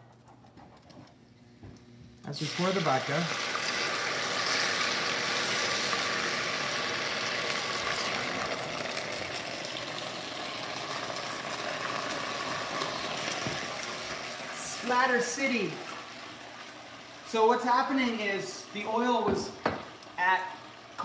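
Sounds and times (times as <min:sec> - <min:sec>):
oil sizzling and spattering: 0:02.4 - 0:17.3.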